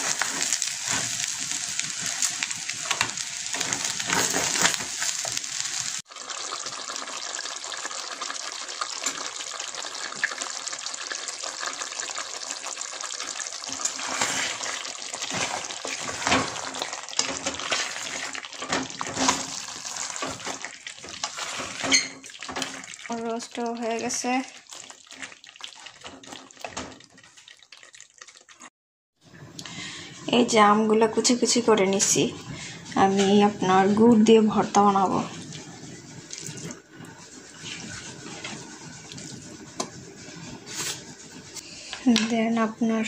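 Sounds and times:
rice sizzling in oil: 0:00.0 - 0:26.9
chicken sizzling in pot: 0:00.0 - 0:28.7, 0:29.6 - 0:42.5
wooden spatula stirring: 0:11.0 - 0:28.7, 0:32.9 - 0:41.6.

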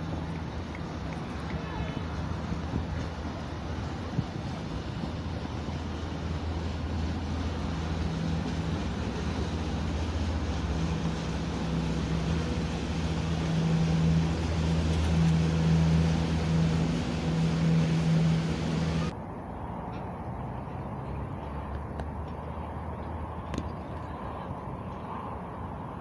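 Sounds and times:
boat motor humming: 0:00.0 - 0:19.2.

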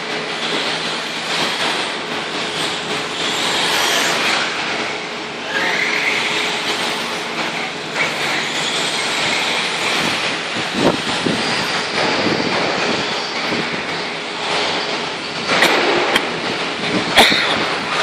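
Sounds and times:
toy truck drivetrains whining: 0:02.4 - 0:13.3.

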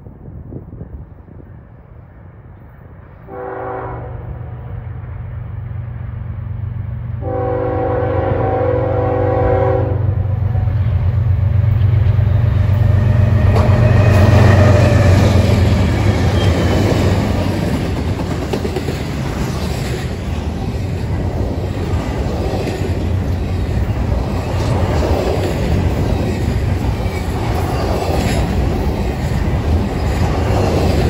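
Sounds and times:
locomotive air horn blasts: 0:03.3 - 0:04.6, 0:07.2 - 0:10.8
freight cars rolling: 0:10.9 - 0:31.0.

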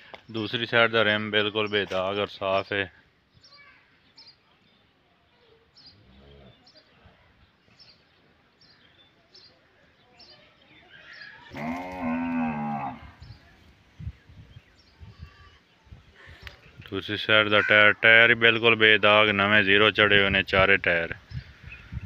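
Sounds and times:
cow mooing: 0:11.5 - 0:13.2.

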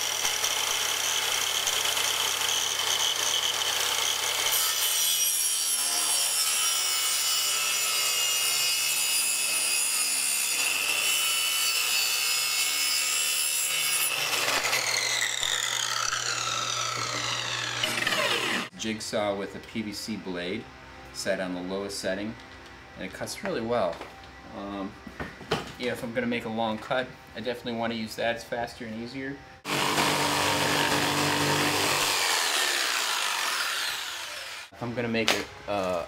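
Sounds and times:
saw blade winding down: 0:00.0 - 0:06.3, 0:13.7 - 0:18.7, 0:29.7 - 0:34.7
circular saw whining: 0:00.0 - 0:18.8, 0:29.6 - 0:34.8
saw cutting through wood: 0:00.0 - 0:18.8, 0:29.6 - 0:34.8.

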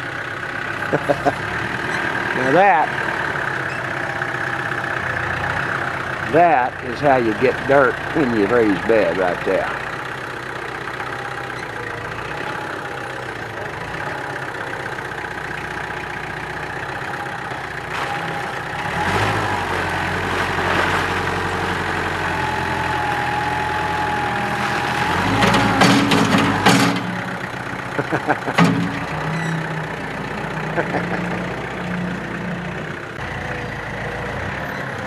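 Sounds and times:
tractor diesel engine running: 0:00.0 - 0:35.0
sharp clanks: 0:25.4 - 0:27.4, 0:28.2 - 0:29.6.

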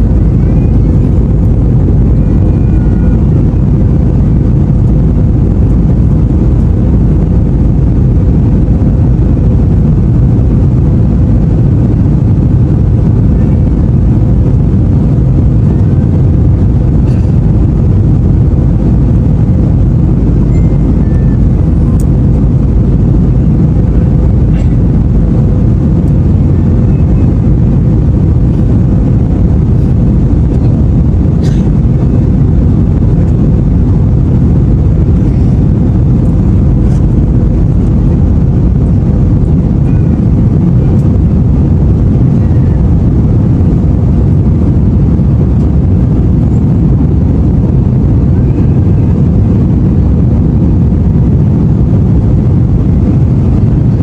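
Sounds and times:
faint steady hum: 0:00.0 - 0:54.0
jet engines rumbling in cabin: 0:00.0 - 0:54.0.

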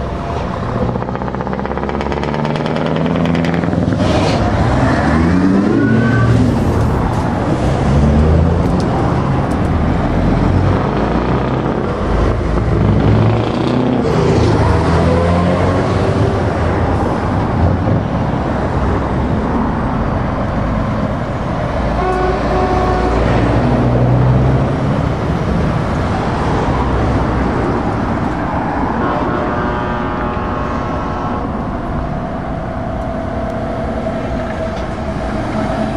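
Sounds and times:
traffic passing: 0:00.0 - 0:35.9
vehicle horn: 0:22.0 - 0:23.7, 0:28.9 - 0:32.0.

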